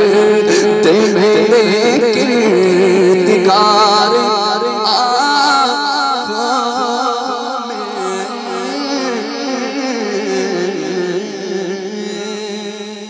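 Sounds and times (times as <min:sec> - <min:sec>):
man singing through loudspeakers: 0:00.0 - 0:13.0.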